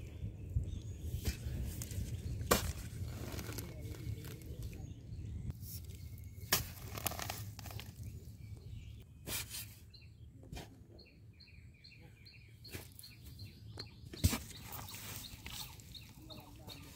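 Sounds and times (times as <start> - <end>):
soil crumbling and scraping: 1.1 - 9.0, 14.1 - 16.9
hands digging in wet mud: 1.2 - 4.6, 14.3 - 16.9.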